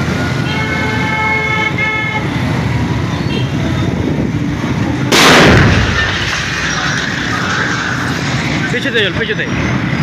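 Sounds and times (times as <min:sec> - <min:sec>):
steady background din: 0:02.2 - 0:10.0
loud explosion: 0:05.1 - 0:07.9.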